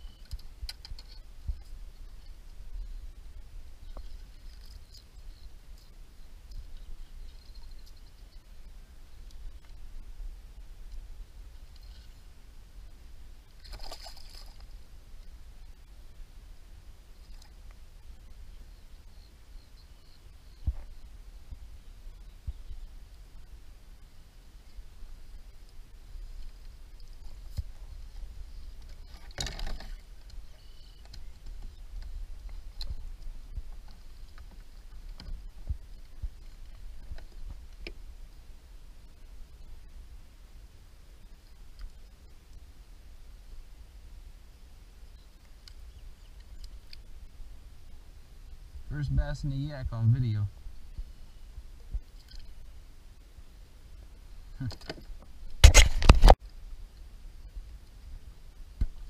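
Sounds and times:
faint clicks: 45.4 - 47.1.

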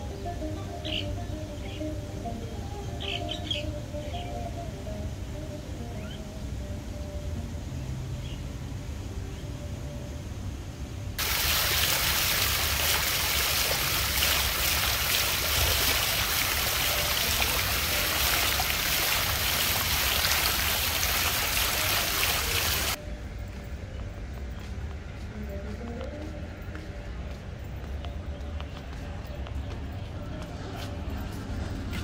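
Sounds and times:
water splashing from wall fountain: 11.2 - 23.0.

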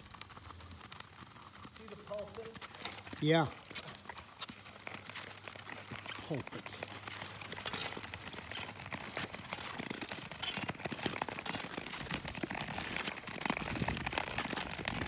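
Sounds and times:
ice skate blades scraping ice: 0.0 - 15.0.

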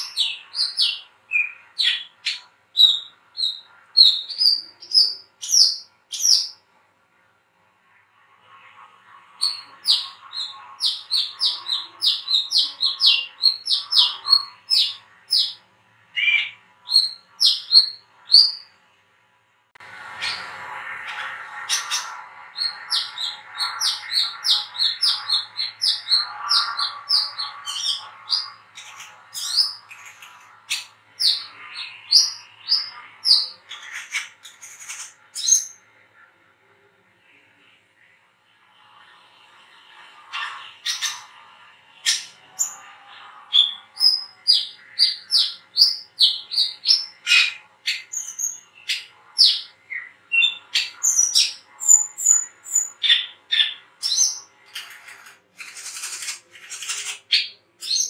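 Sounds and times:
bird twittering: 0.0 - 6.6, 9.4 - 15.6, 16.2 - 18.7, 20.2 - 35.8, 43.5 - 58.0.

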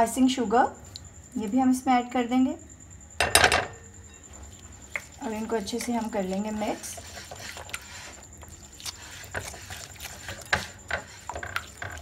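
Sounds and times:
spatula stirring in glass bowl: 4.3 - 12.0.

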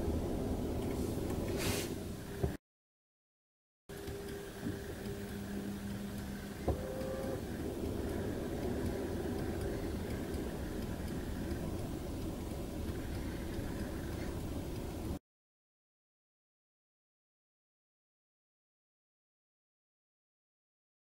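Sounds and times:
car engine idling rumble: 0.0 - 2.6, 4.1 - 15.2.

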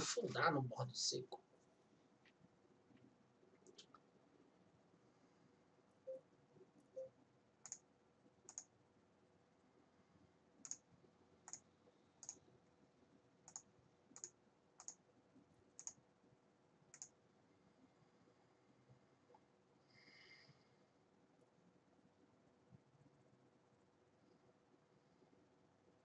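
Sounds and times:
computer mouse clicks: 3.0 - 4.0, 7.6 - 8.7, 10.6 - 12.4, 13.4 - 15.0, 15.7 - 16.0, 16.9 - 17.2.

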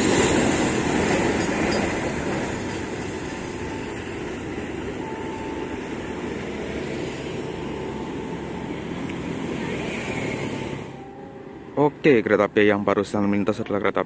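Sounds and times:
train wheels rumbling on rails: 0.0 - 11.1.

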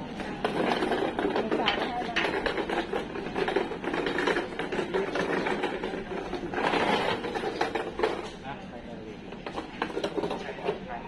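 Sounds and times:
metal hand trolley rattling on tiles: 0.4 - 8.4.

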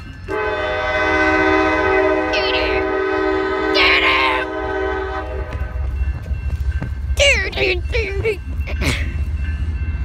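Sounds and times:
train horn chord: 0.2 - 5.9.

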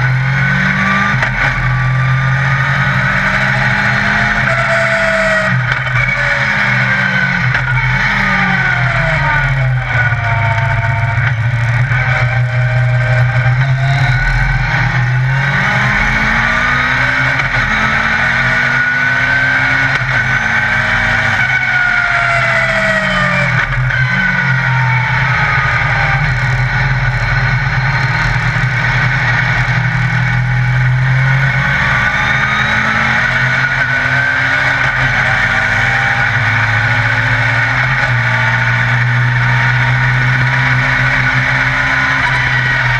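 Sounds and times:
motorcycle engine revving under load: 0.0 - 42.9.

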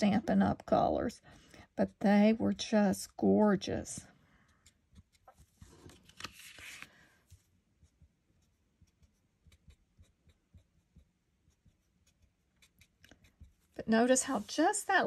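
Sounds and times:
card sliding on craft mat: 5.6 - 6.9
marker nib ticking on card: 8.4 - 13.6.

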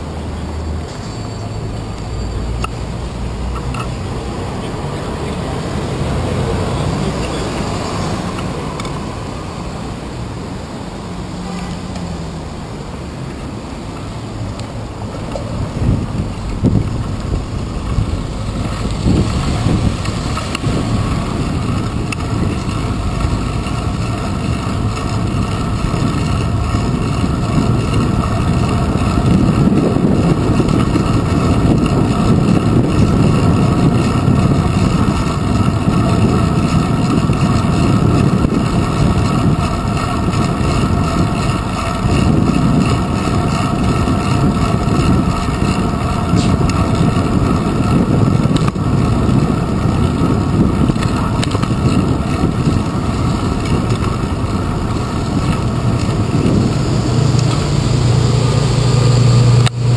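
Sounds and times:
city traffic: 0.0 - 59.9
road rumble: 0.0 - 59.9
wind rushing: 14.2 - 59.9.

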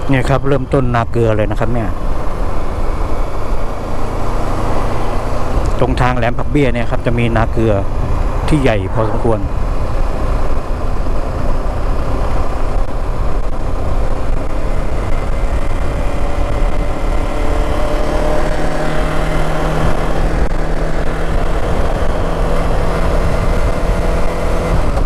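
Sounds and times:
motorcycle engine hum: 0.0 - 25.0
wind rumble on microphone: 0.0 - 25.0.

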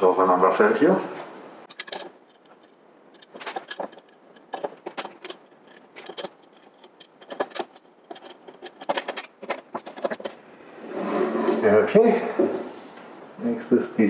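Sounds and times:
metal parts clicking and clinking: 1.7 - 10.4.

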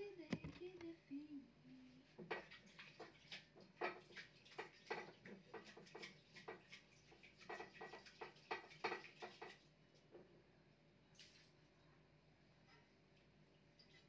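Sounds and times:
faint clicking and tapping: 0.0 - 10.5.

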